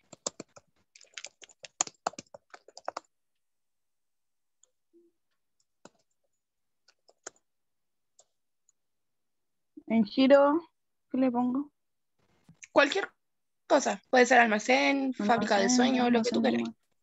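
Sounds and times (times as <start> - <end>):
typing on computer keyboard: 0.0 - 3.1, 6.8 - 7.4.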